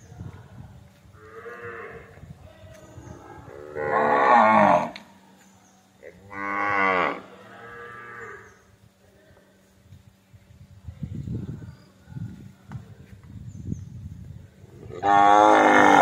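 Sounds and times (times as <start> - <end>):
cattle mooing: 3.6 - 5.0, 14.9 - 16.0.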